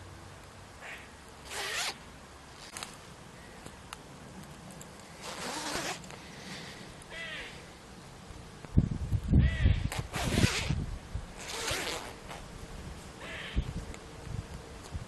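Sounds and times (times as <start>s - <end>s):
metal zip zipping: 1.4s - 2.0s, 5.2s - 6.1s, 9.9s - 10.8s, 11.4s - 12.4s.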